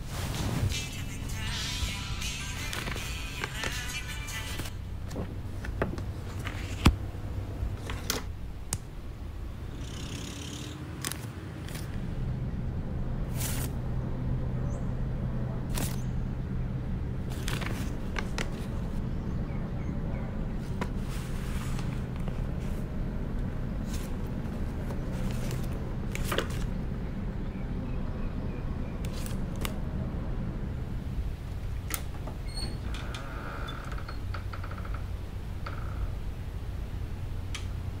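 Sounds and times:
steady low hum: 0:00.0 - 0:38.0
paper rustling and scraping: 0:02.5 - 0:03.9, 0:04.5 - 0:06.9, 0:13.3 - 0:13.8, 0:15.7 - 0:16.0, 0:17.3 - 0:19.0, 0:20.6 - 0:22.9, 0:23.8 - 0:26.8, 0:29.1 - 0:29.8.

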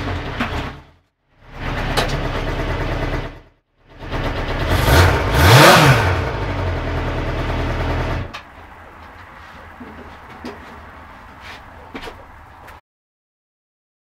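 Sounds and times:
motorcycle engine idling and revving: 0:00.0 - 0:11.1.

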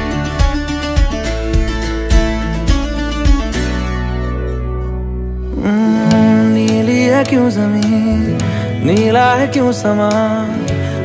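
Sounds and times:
instrumental song with steady beat: 0:00.0 - 0:11.0.

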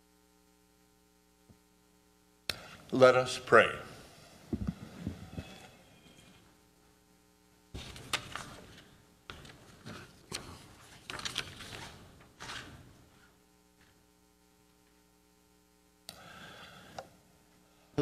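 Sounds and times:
steady low hum: 0:00.0 - 0:18.0
paper rustling: 0:07.8 - 0:12.9.

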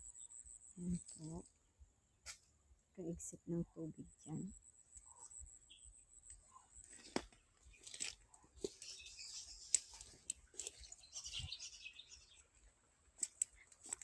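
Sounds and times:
twigs snapping underfoot: 0:07.0 - 0:08.9, 0:09.6 - 0:10.9, 0:13.2 - 0:14.0.

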